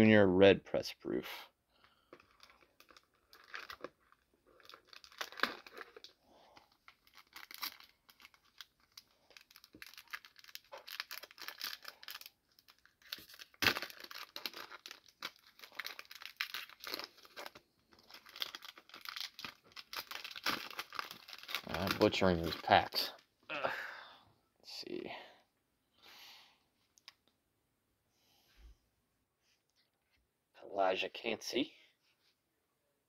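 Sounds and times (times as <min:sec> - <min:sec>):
plastic wrapper crinkling: 0:01.8 - 0:23.2.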